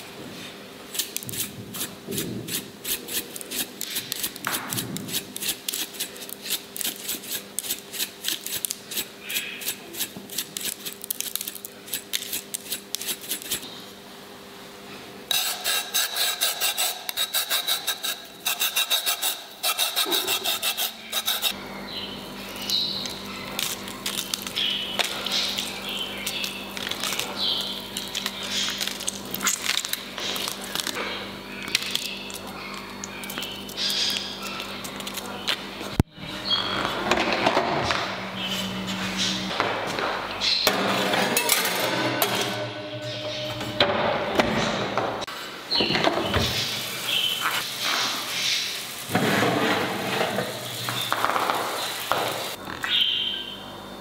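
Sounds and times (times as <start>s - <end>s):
peel rasping on metal grater: 0.9s - 13.7s, 15.3s - 21.6s
low hum: 21.0s - 45.3s.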